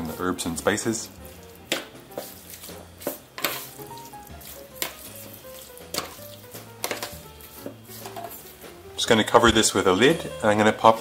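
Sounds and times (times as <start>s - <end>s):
wet squelchy mixing: 0.7s - 9.1s.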